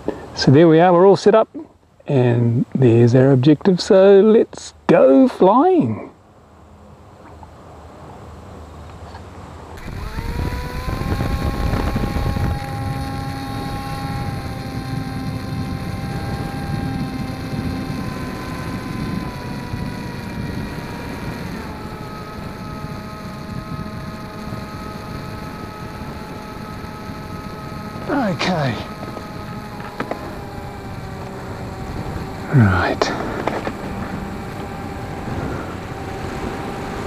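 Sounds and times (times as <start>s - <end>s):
model plane motor whining: 9.7s - 37.0s.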